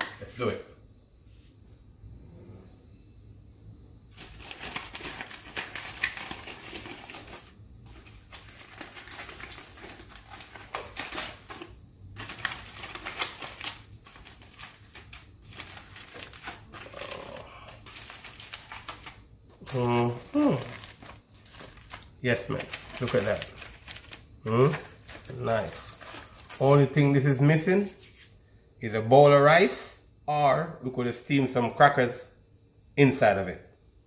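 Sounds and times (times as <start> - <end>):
aluminium foil crinkling: 4.1 - 27.0.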